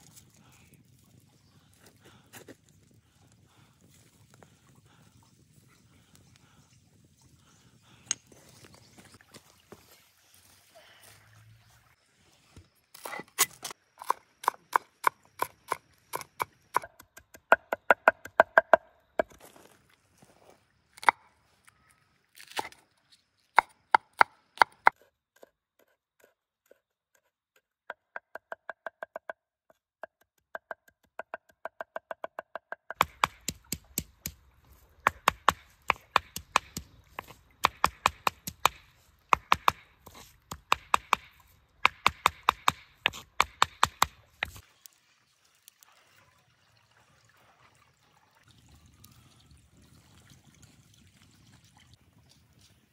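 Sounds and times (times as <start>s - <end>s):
blade chopping herbs on stone: 35.1s - 44.6s
sharp chopping strikes: 40.5s - 44.6s.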